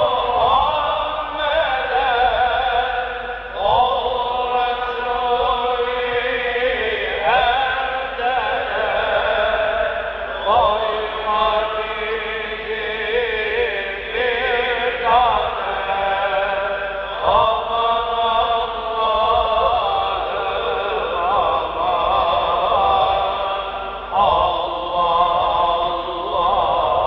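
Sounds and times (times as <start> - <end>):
solo voice chanting religious melody: 0.0 - 27.0.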